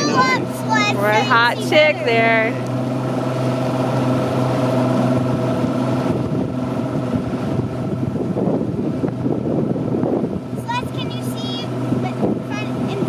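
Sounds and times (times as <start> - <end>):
boat motor humming: 0.0 - 13.0
water rushing: 0.0 - 13.0
wind rushing: 4.8 - 10.8.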